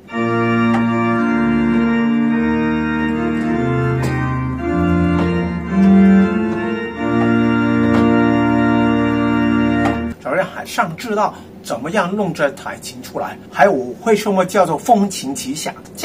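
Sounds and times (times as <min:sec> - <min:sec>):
digital organ chords: 0:00.0 - 0:10.2.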